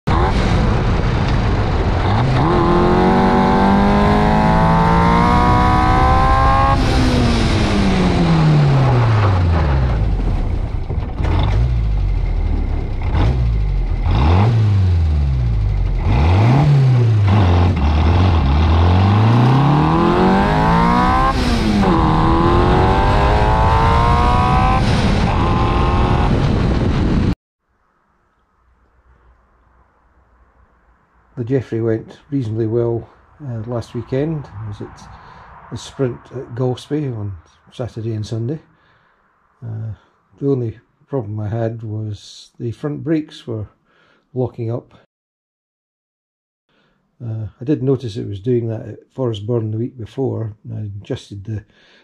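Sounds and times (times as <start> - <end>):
wind and road noise: 0.1 - 40.4
racing car engine revving: 1.4 - 10.3, 11.2 - 26.6.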